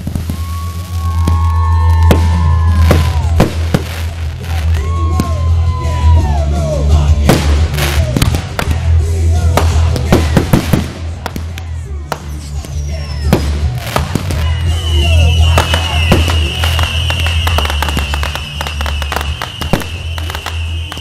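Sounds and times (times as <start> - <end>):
fireworks bangs and crackles: 0.0 - 6.4, 7.0 - 21.0
loud music with heavy bass: 1.1 - 20.4.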